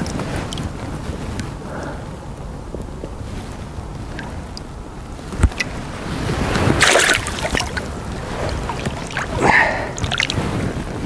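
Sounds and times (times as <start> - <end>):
water splashing and sloshing: 3.4 - 10.8.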